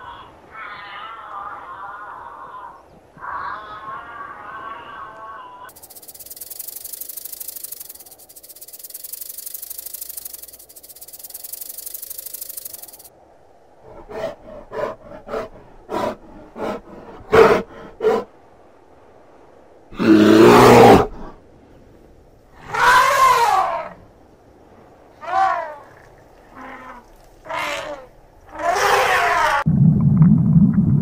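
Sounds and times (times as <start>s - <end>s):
snake hissing: 5.7s - 13.1s, 25.3s - 29.6s
bear growling: 13.8s - 18.3s
bear grunting: 13.8s - 18.3s.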